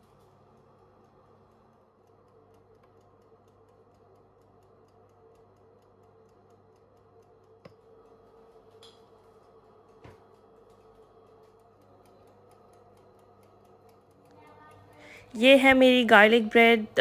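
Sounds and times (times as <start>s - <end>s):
low steady hum: 0.0s - 17.0s
mechanical timer ticking: 0.0s - 17.0s.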